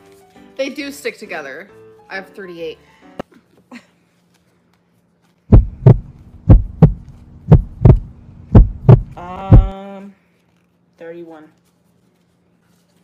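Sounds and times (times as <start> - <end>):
heartbeat thumps: 5.5 - 9.7
held humming tone: 5.5 - 9.7.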